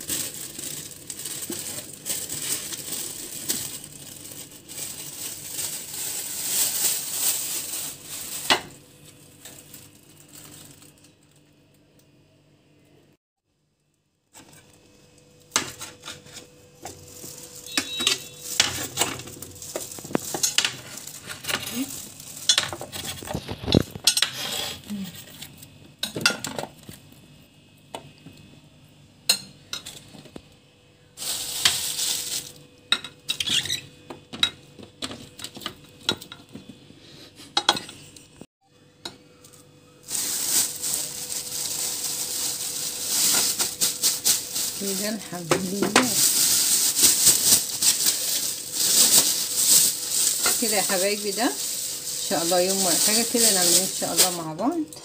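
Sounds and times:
plastic bags crinkling: 0.0 - 11.4, 15.6 - 24.1, 31.2 - 33.9, 39.5 - 54.8.

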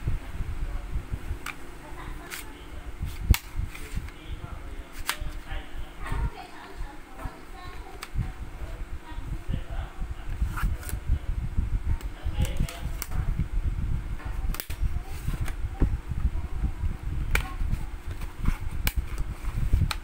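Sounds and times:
rubbing and scraping handling noise: 1.4 - 9.6, 10.2 - 11.1, 14.2 - 15.9, 17.2 - 20.0.

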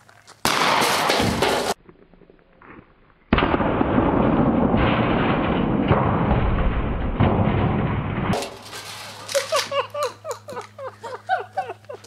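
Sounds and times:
slow motion shotgun blast rumble: 3.3 - 8.4.

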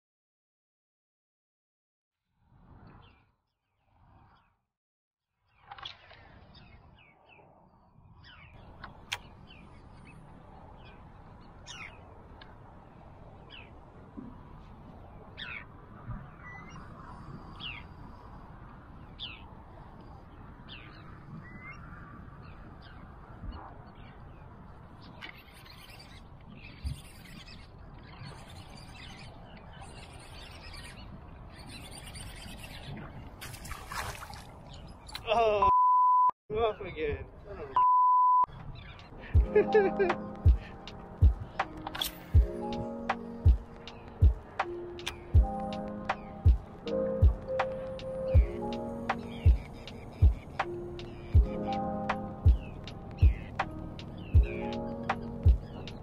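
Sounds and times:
bird chirps: 25.2 - 33.0, 41.4 - 56.0.

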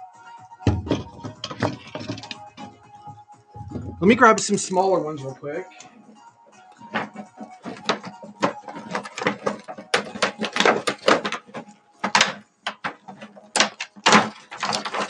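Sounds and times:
plastic ornaments clattering: 0.7 - 2.8, 6.8 - 15.0
plastic packaging crackling: 6.9 - 15.0.

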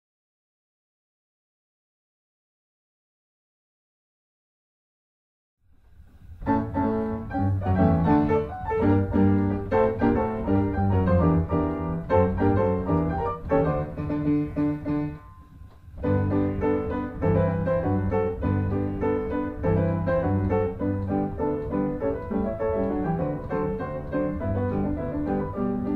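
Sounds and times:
piano music: 6.2 - 25.9.

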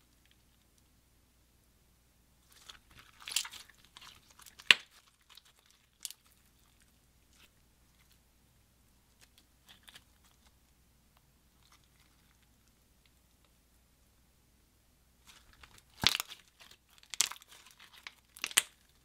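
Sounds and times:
beaded slime crackling and clicking: 2.6 - 6.7, 15.3 - 19.0
slime popping: 15.3 - 19.0.

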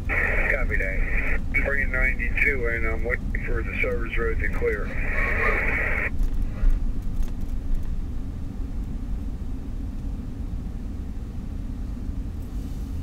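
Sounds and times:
car engine and tyre rumble: 6.1 - 13.0.

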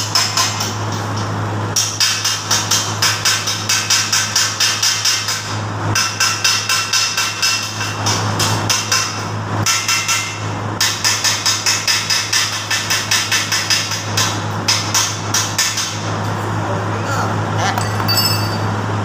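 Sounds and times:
hammer striking metal frame: 6.0 - 16.0, 17.8 - 18.7.

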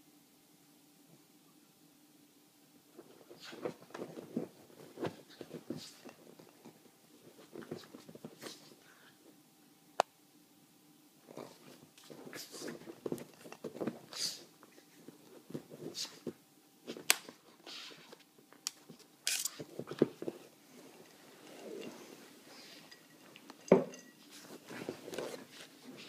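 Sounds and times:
animals scuffling on sofa: 3.0 - 9.1, 11.3 - 18.3, 19.5 - 26.0.

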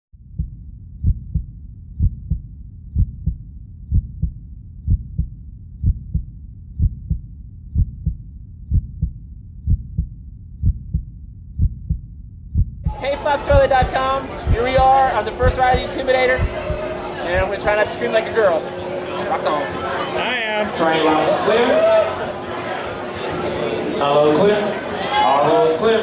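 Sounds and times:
heartbeat thumps: 0.1 - 17.9.

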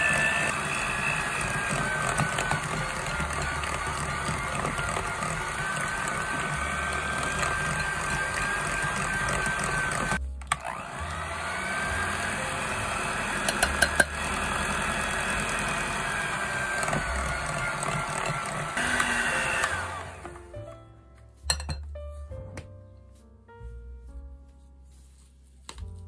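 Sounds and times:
electric hand mixer whining: 0.0 - 20.5.

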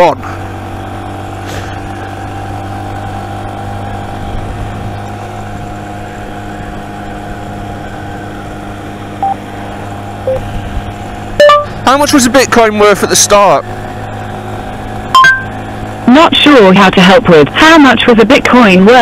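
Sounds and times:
motorcycle engine cruising: 0.0 - 19.0
short electronic beep: 11.4 - 11.7, 15.1 - 15.5.

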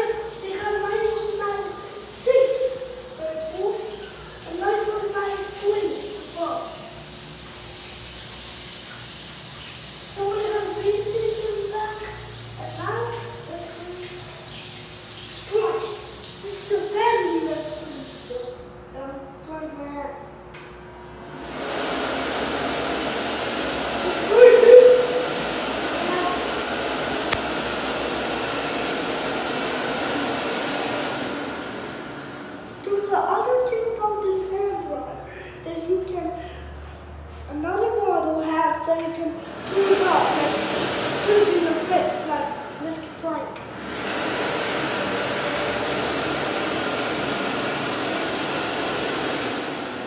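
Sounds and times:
hand dryer blowing air: 0.0 - 18.6, 21.3 - 32.9, 39.5 - 42.8, 43.6 - 50.0.

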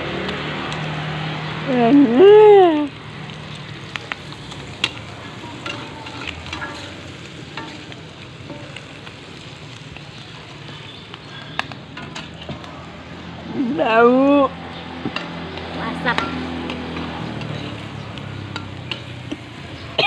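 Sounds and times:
food sizzling in oil: 0.1 - 20.0
metal spatula scraping pan: 4.7 - 9.1, 11.9 - 12.5.

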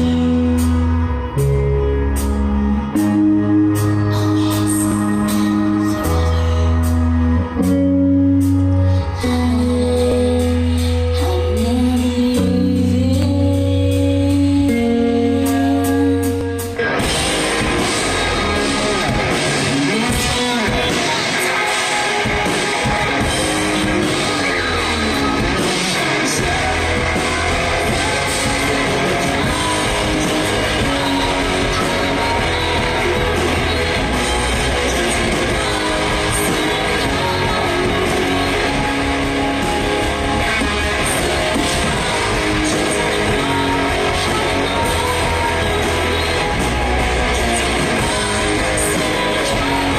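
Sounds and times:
rock band playing loud: 0.0 - 49.9.

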